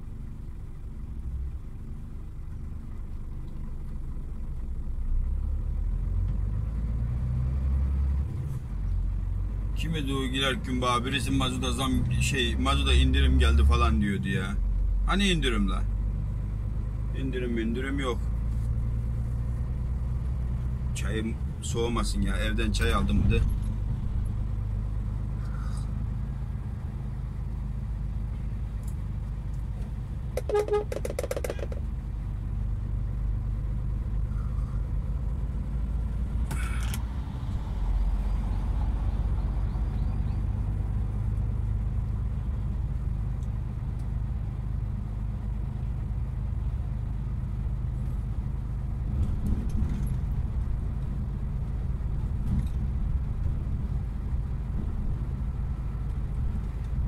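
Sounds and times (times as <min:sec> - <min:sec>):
engine and road noise in cab: 0:00.0 - 0:57.0
short pitched tone: 0:30.4 - 0:31.1.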